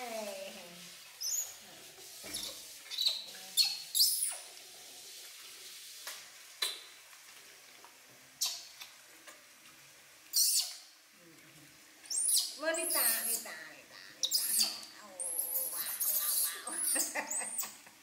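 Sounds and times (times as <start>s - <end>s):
infant monkeys squeaking: 2.3s - 4.5s, 8.4s - 8.7s, 10.3s - 10.9s, 12.1s - 17.8s.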